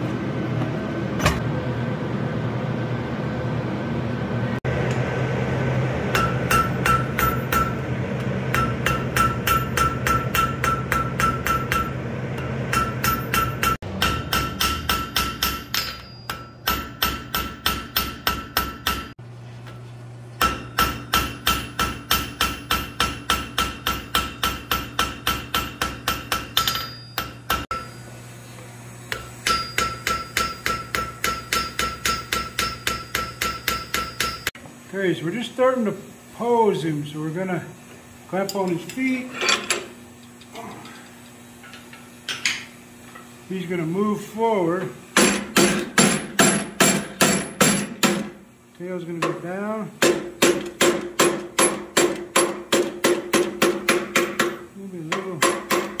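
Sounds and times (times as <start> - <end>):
anvil ringing: 6.1 - 7.8, 8.5 - 19.2, 20.4 - 28.0, 29.1 - 34.6
hammer striking steel on anvil: 6.1 - 7.9, 8.5 - 19.2, 20.4 - 28.0, 29.1 - 34.6, 45.2 - 48.4, 50.0 - 56.0.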